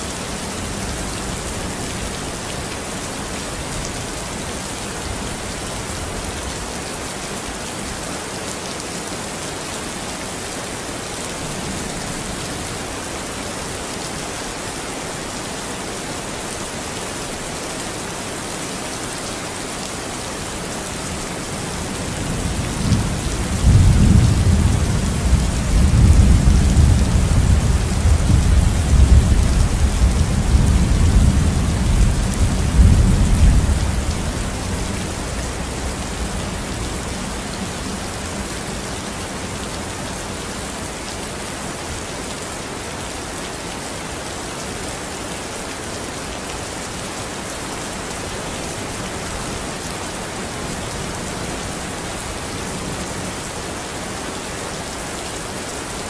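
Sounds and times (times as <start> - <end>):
heavy rain hissing: 0.0 - 56.0
rolling thunder rumble: 22.4 - 34.7.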